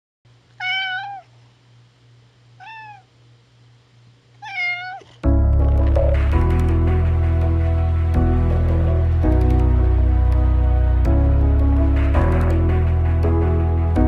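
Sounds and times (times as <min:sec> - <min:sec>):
cat meowing: 0:00.6 - 0:01.3, 0:02.6 - 0:03.1, 0:04.4 - 0:05.2
music: 0:05.2 - 0:14.0.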